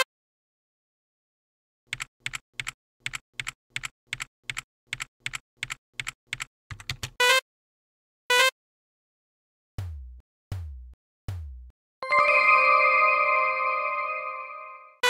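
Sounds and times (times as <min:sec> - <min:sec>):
keyboard keystrokes: 0:01.9 - 0:07.2.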